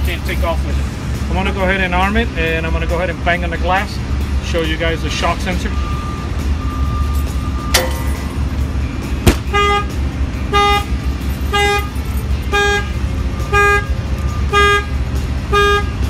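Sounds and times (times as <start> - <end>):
truck horn honking: 9.3 - 16.0.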